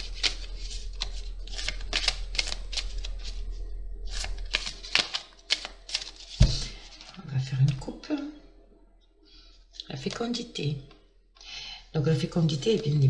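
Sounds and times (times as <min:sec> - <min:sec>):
cards being shuffled: 0:00.0 - 0:03.5, 0:04.1 - 0:07.8.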